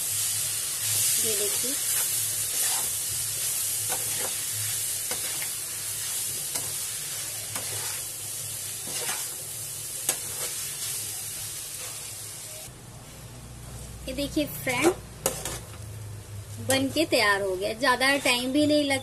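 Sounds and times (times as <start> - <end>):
noodles sizzling in a pan: 0.0 - 12.7
spatula scraping a metal pan: 1.9 - 3.0, 3.9 - 4.4, 5.1 - 8.1, 8.8 - 9.4, 15.2 - 15.7.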